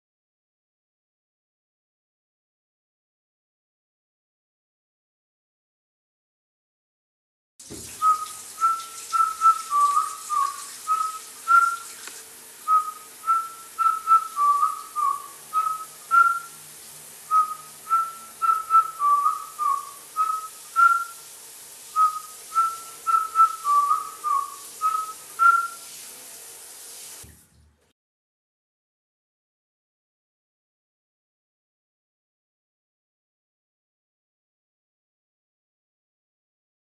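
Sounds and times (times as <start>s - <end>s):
steady hiss: 7.6s - 27.3s
person whistling a tune: 8.0s - 11.9s, 12.7s - 16.6s, 17.3s - 21.2s, 22.0s - 25.8s.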